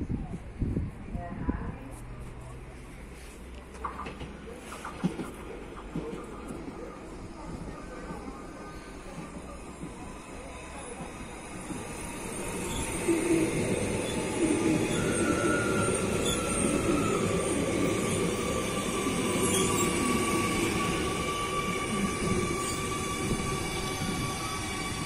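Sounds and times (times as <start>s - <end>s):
train rumbling on tracks: 0.0s - 25.0s
high-pitched wheel squeal: 14.0s - 18.6s.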